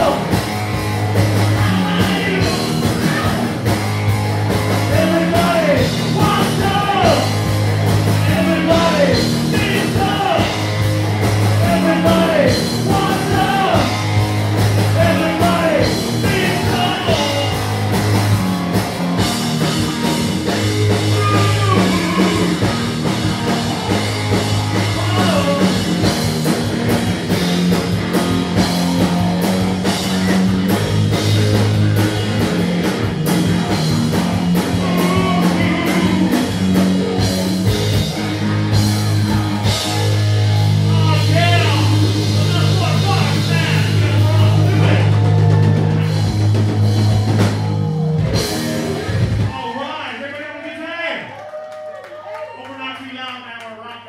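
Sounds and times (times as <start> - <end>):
live rock band playing: 0.0 - 50.0
singer's lead vocals: 1.4 - 3.6, 4.8 - 7.4, 8.1 - 10.6, 11.5 - 14.2, 14.8 - 17.7, 20.7 - 26.0, 34.6 - 36.9.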